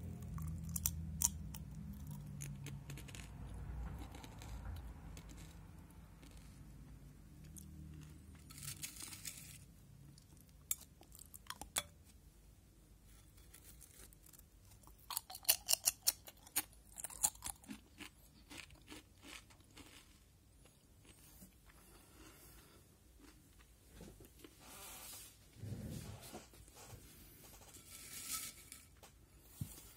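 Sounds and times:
potato chips crunching: 0.1s - 3.3s, 13.6s - 21.2s.

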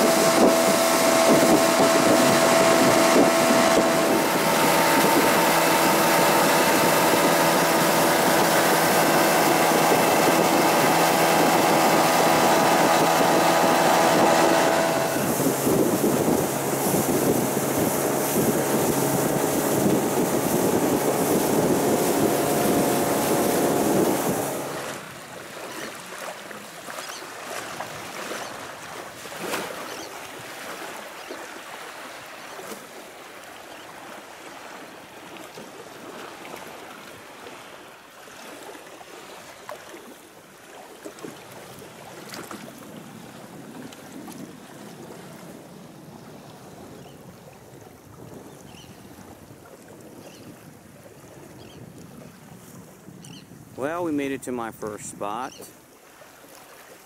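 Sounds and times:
wind rushing: 0.0s - 25.0s
outboard motor: 0.0s - 57.0s
water lapping: 0.0s - 57.0s
small water slaps: 21.3s - 33.6s, 38.3s - 44.6s.

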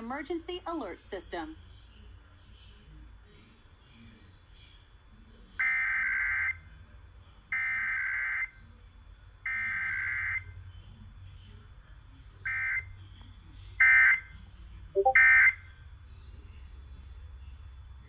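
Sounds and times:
digital data tone bursts: 15.0s - 15.5s.

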